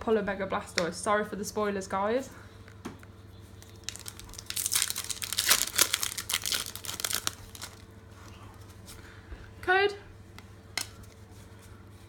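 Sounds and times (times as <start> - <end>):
foil wrapper crinkling and tearing: 3.6 - 7.9.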